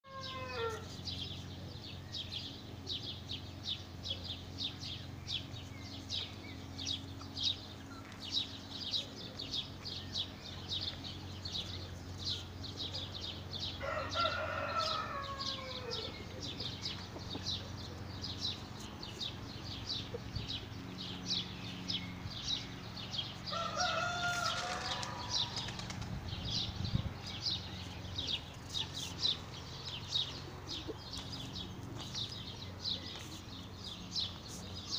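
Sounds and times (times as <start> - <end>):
rooster crowing: 0.1 - 0.9, 13.8 - 16.2, 23.5 - 25.6
low steady hum: 0.1 - 34.9.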